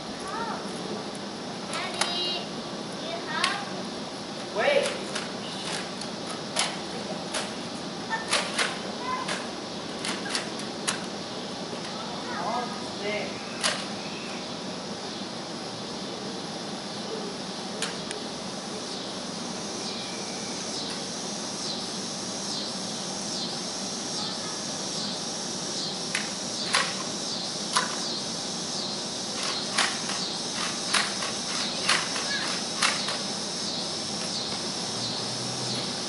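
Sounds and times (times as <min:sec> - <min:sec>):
insects chirping: 0:00.0 - 0:36.0
toy dart blasters clicking: 0:08.2 - 0:11.1, 0:13.6 - 0:13.9, 0:26.1 - 0:27.1, 0:27.7 - 0:28.1, 0:29.4 - 0:33.3.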